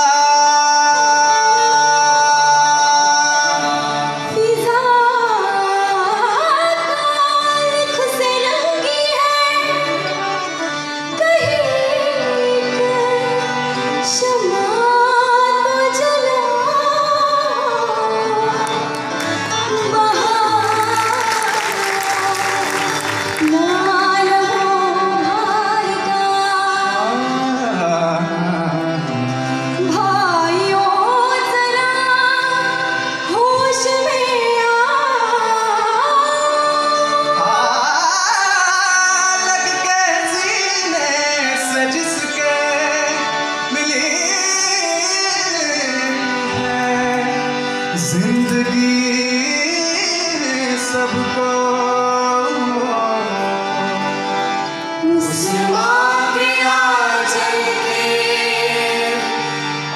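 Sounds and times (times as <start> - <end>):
instrumental accompaniment: 0.0 - 59.9
voices singing: 54.1 - 59.9.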